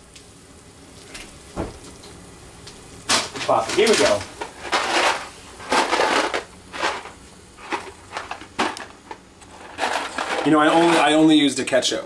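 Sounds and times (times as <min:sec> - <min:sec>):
crunching and rustling handling noise: 0:03.1 - 0:11.8.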